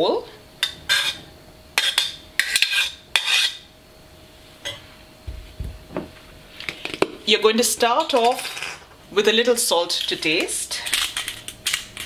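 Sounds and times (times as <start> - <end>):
metal spoon clinking and scraping: 1.8 - 3.6.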